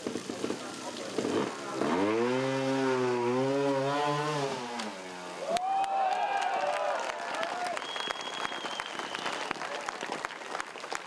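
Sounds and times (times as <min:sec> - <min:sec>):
motorcycle engine revving hard: 0:00.4 - 0:05.4.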